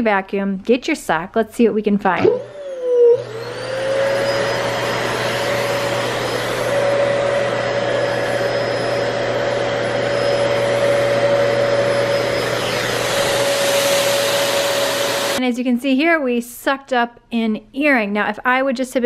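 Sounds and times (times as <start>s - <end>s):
vacuum cleaner running: 2.1s - 15.4s.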